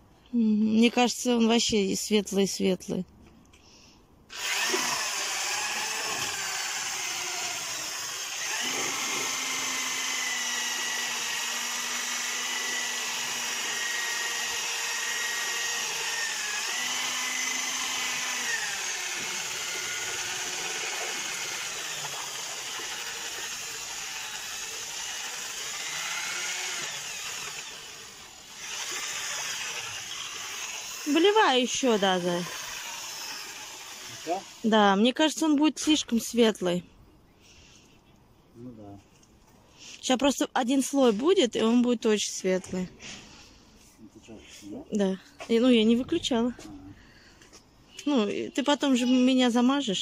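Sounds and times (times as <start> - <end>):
electric drill mixing paint: 4.3 - 34.7.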